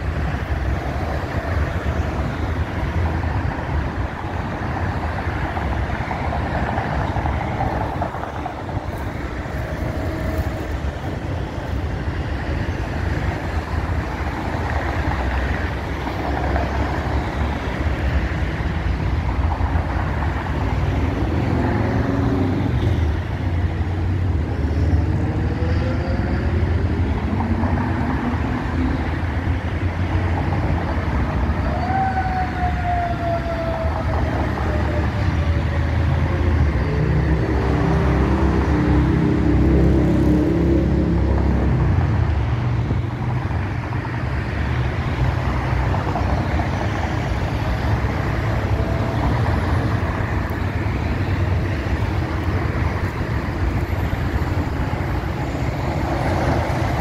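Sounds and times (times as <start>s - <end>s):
freeway traffic rumble: 0.0s - 57.0s
fire engine siren wailing: 1.0s - 11.8s, 31.1s - 41.4s, 46.1s - 50.7s.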